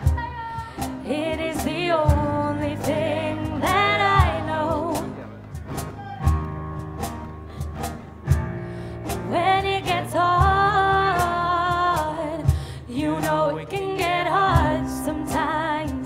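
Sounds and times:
acoustic guitar: 0:00.0 - 0:16.0
cajon strokes: 0:00.0 - 0:16.0
keyboard: 0:00.0 - 0:16.0
deep drum hit: 0:05.6 - 0:12.9.

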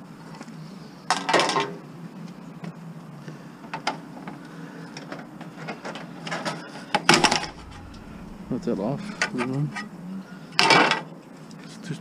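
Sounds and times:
steady low hum: 0:07.1 - 0:10.7.

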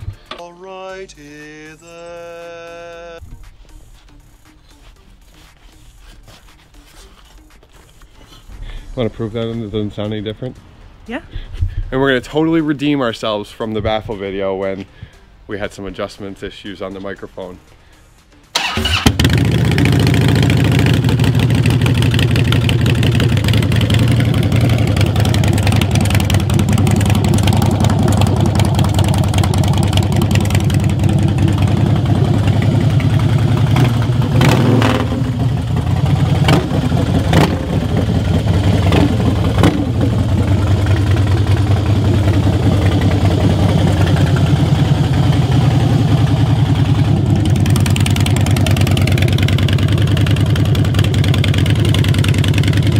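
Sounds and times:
motorcycle engine idling: 0:18.5 - 0:52.9.

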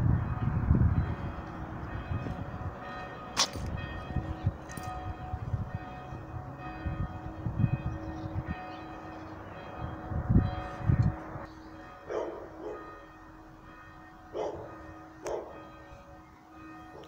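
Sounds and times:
church bells ringing: 0:00.0 - 0:17.0.

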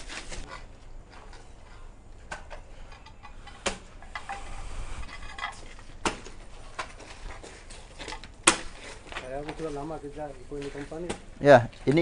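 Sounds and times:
digging tool striking earth and stones: 0:06.0 - 0:06.9, 0:08.4 - 0:08.9.

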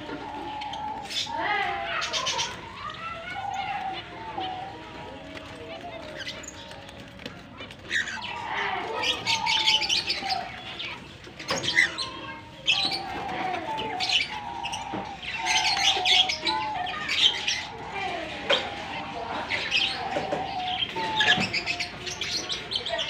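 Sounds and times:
cockatiels chirping and whistling: 0:07.6 - 0:23.0.

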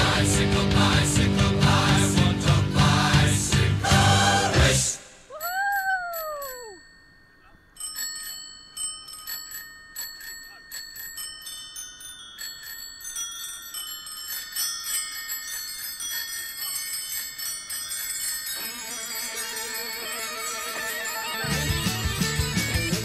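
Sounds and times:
bicycle bells ringing: 0:05.3 - 0:23.0
electric guitar: 0:20.4 - 0:23.0.

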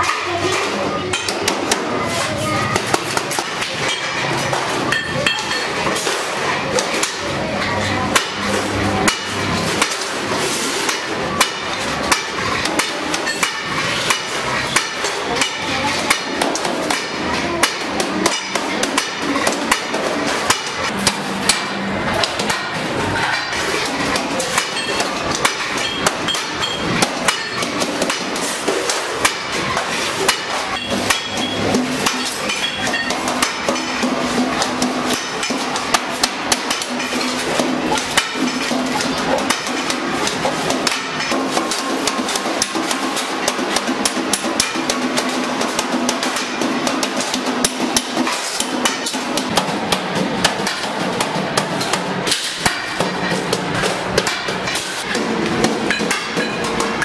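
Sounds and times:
metallic clicks and knocks: 0:02.7 - 0:57.0.

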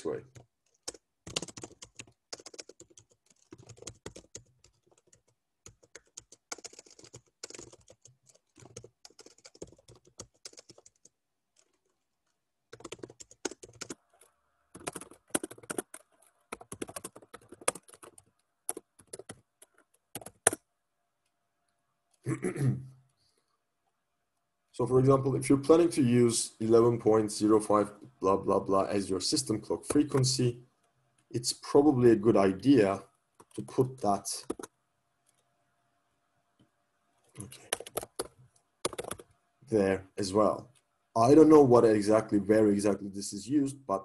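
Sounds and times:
typing on computer keyboard: 0:00.3 - 0:11.9, 0:12.7 - 0:20.6, 0:33.4 - 0:33.7, 0:34.4 - 0:34.7, 0:37.4 - 0:39.3.

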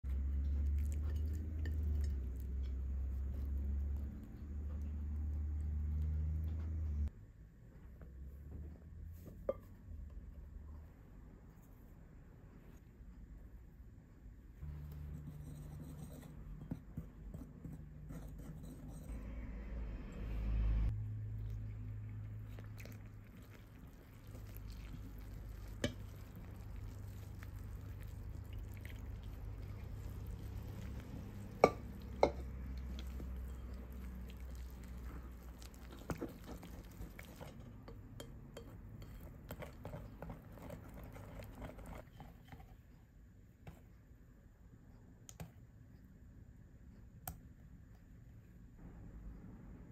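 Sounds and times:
low steady hum: 0:00.0 - 0:49.9
whisk stirring batter in bowl: 0:15.0 - 0:19.2, 0:22.3 - 0:42.8.

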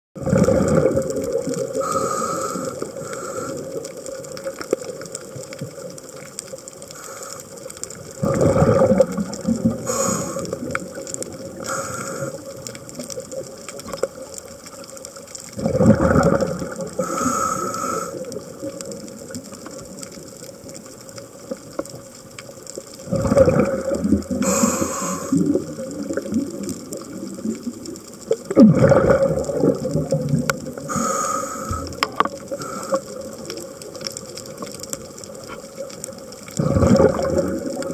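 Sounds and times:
exhaled bubbles underwater: 0:00.2 - 0:07.0, 0:07.6 - 0:37.9
faint steady hum: 0:00.2 - 0:37.9
small clicks: 0:00.4 - 0:08.2, 0:09.0 - 0:15.6, 0:16.2 - 0:28.6, 0:29.2 - 0:37.9
regulator hissing inhalation: 0:01.8 - 0:03.8, 0:06.9 - 0:07.6, 0:09.8 - 0:10.7, 0:11.6 - 0:12.4, 0:17.0 - 0:18.3, 0:24.4 - 0:25.6, 0:30.8 - 0:33.1.

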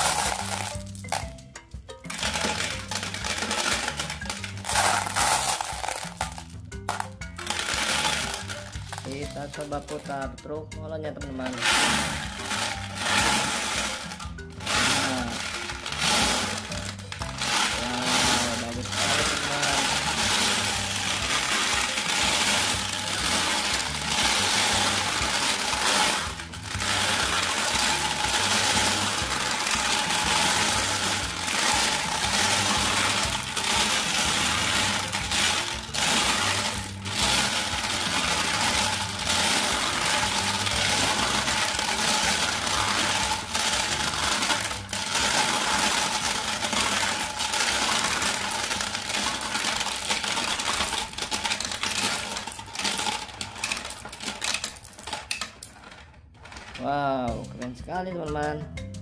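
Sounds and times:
glass marbles rattling in plastic drum: 0:00.0 - 0:57.6.

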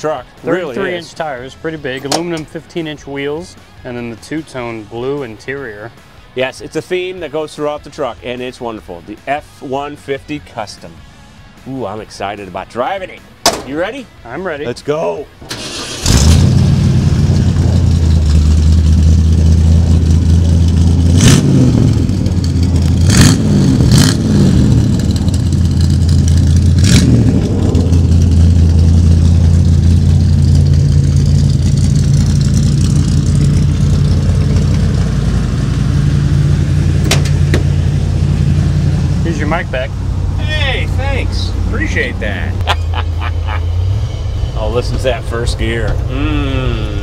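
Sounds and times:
truck engine revving and idling: 0:15.4 - 0:47.0.

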